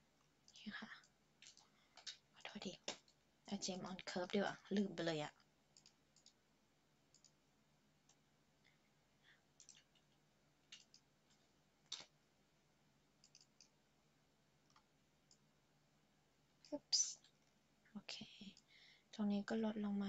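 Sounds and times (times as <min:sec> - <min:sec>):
faint low hum: 0:00.0 - 0:20.0
computer mouse clicks: 0:00.4 - 0:03.2, 0:05.7 - 0:06.4, 0:07.1 - 0:07.4, 0:08.0 - 0:08.2, 0:09.6 - 0:12.2, 0:13.2 - 0:13.8, 0:14.6 - 0:15.5.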